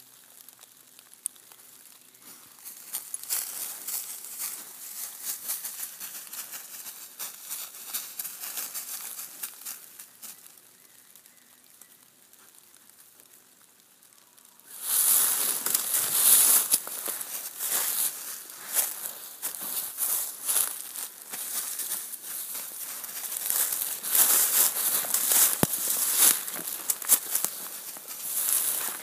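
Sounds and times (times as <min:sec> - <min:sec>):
dry leaves crunching underfoot: 0:02.2 - 0:10.6, 0:14.7 - 0:29.0.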